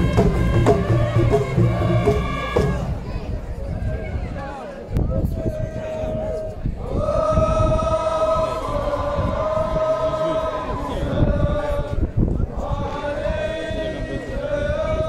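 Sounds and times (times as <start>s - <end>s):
crowd noise: 0.0s - 15.0s
men chanting in unison: 6.8s - 15.0s.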